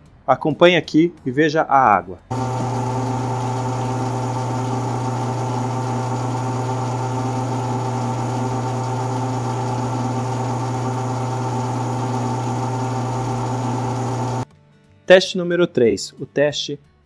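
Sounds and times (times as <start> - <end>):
metal lathe motor hum: 2.3 - 14.4.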